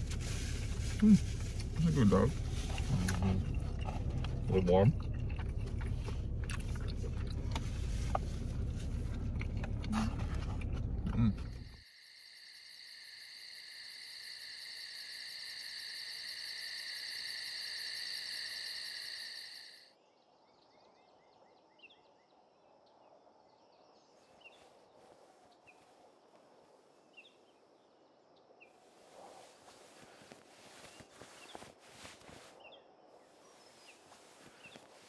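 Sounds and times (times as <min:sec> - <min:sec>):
fast-pulsing insect chorus: 0:11.7 - 0:19.9.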